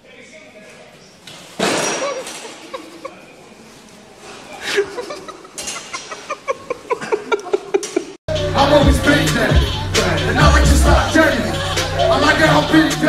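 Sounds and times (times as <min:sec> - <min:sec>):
bursts of laughter: 0:04.6 - 0:08.2, 0:09.6 - 0:13.0.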